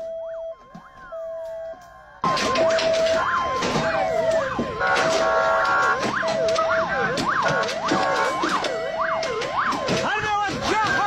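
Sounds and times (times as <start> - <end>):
vehicle sirens wailing: 0.0 - 11.0
sharp knocks: 2.2 - 11.0.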